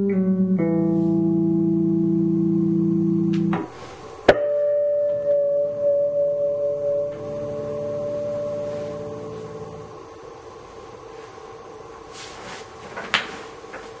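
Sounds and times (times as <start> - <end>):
bass pluck with ringing harmonics: 0.0 - 3.7, 4.3 - 10.0
electric bass low note: 0.0 - 3.8, 4.6 - 10.0.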